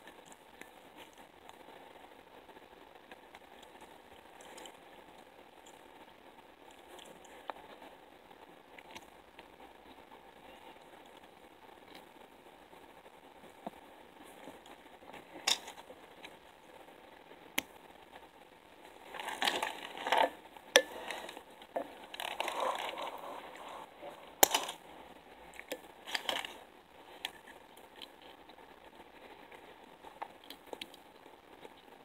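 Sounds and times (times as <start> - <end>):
rustling and crinkling: 0.0 - 32.0.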